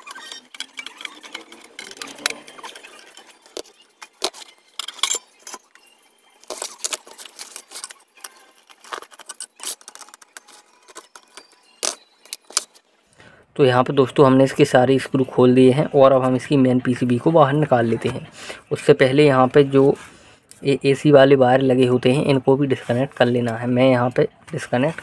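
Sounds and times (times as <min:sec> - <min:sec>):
metallic clicks and scrapes: 0:00.0 - 0:12.8.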